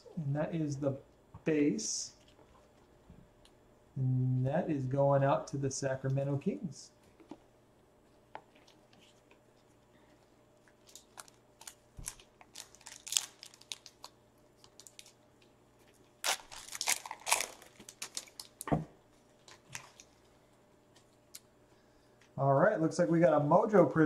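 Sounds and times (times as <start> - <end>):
foil wrapper crinkling: 10.7 - 15.2, 15.8 - 18.7, 19.4 - 20.2.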